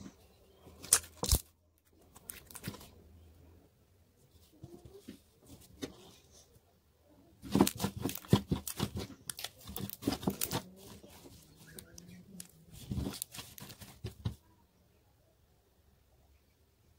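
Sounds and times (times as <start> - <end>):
slime kneaded by hand: 7.4 - 14.4
sticky pops and crackles: 7.5 - 14.2.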